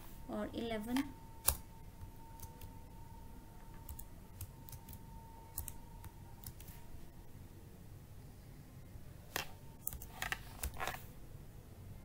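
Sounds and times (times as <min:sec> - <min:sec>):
keyboard keys clicking: 0:03.7 - 0:06.7.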